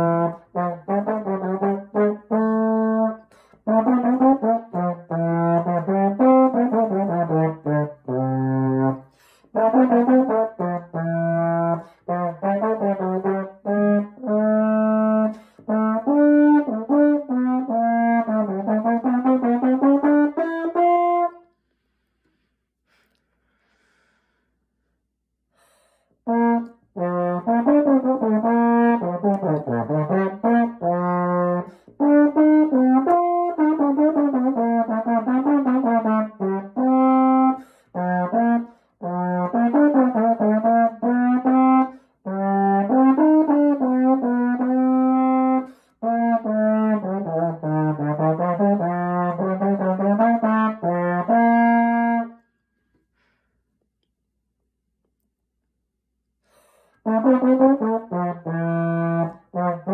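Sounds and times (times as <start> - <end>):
trombone solo melody: 0.0 - 21.5, 26.2 - 52.4, 57.0 - 59.9
player breathing: 21.6 - 26.2, 52.7 - 53.8, 56.4 - 57.0.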